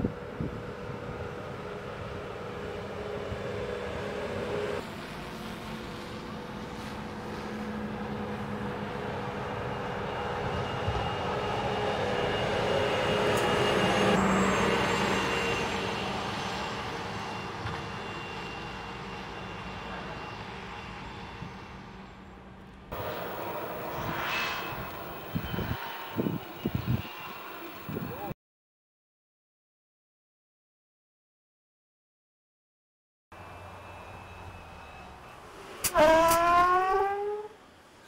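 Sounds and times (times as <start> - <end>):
truck driving past: 22.9 - 28.2
steady whine: 22.9 - 28.4.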